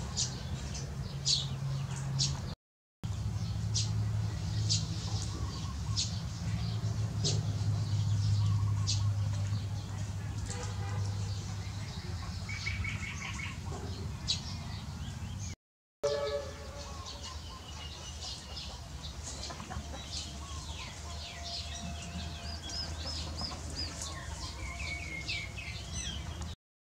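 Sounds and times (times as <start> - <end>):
birds chirping and trilling: 0.0 - 26.6
repeated arched bird notes: 16.1 - 26.5.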